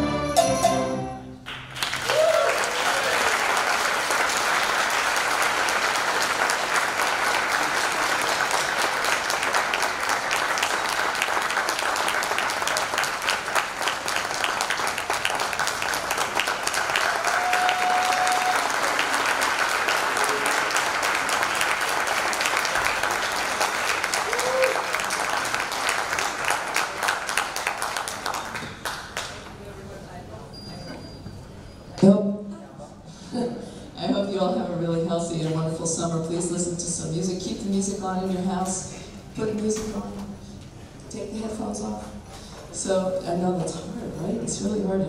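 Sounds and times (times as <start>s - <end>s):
string orchestra chord: 0.0s - 1.4s
audience applause: 1.4s - 29.7s.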